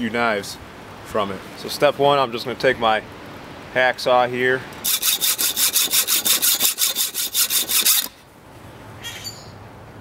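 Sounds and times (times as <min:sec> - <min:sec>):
hacksaw sawing steel: 0:04.8 - 0:08.2.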